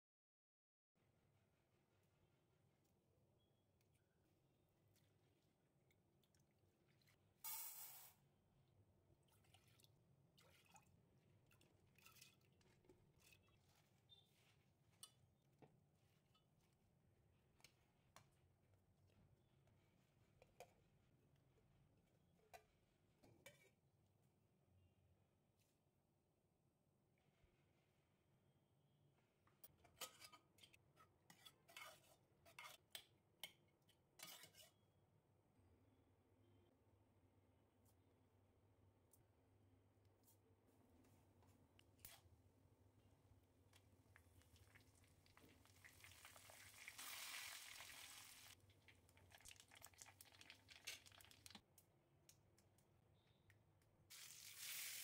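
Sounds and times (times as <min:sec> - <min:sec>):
lentils clattering into water: 0:49.1 - 0:51.6.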